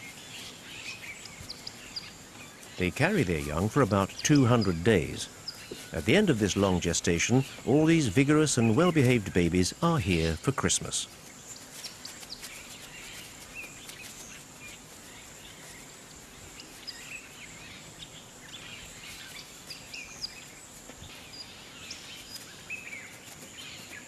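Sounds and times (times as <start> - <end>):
bird chirps and calls: 0.0 - 14.4
soft background hiss: 0.0 - 24.0.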